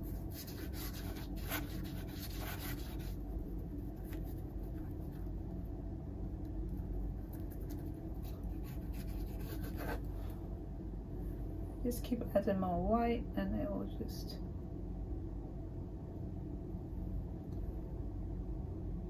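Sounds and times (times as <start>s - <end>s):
paintbrush scrubbing canvas: 0.0s - 3.2s, 7.6s - 10.1s
low hum: 0.0s - 19.0s.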